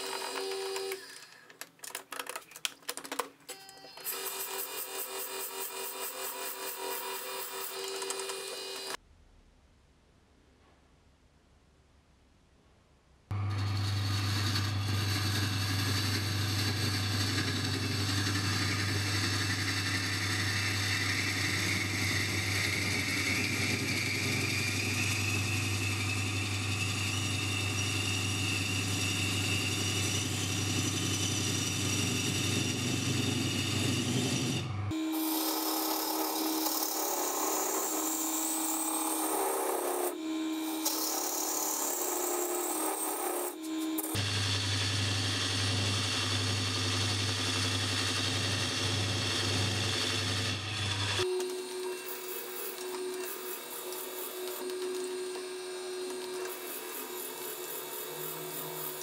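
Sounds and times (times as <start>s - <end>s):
wood lathe motor hum: 0.0s - 1.4s, 4.1s - 9.0s, 13.3s - 59.0s
tool scraping spinning wood: 13.6s - 44.5s, 45.2s - 59.0s.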